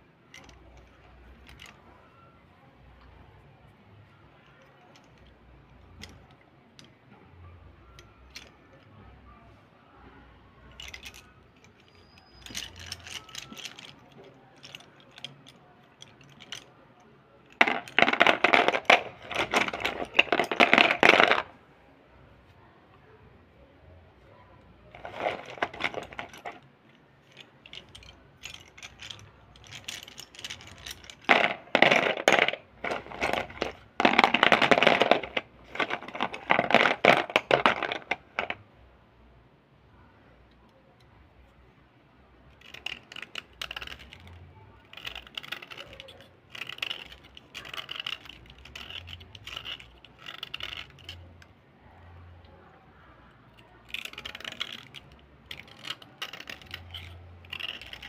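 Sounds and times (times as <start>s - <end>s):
slate pencils clattering in bowl: 10.7s - 16.7s, 17.5s - 21.5s, 25.0s - 26.6s, 27.2s - 38.6s, 42.6s - 51.2s, 53.8s - 58.0s.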